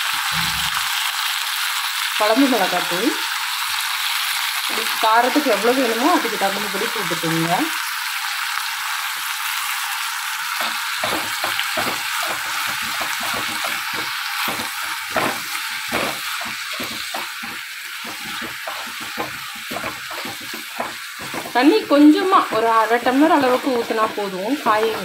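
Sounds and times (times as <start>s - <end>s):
food sizzling in oil: 0.0s - 25.0s
spoon stirring and scraping: 10.6s - 25.0s.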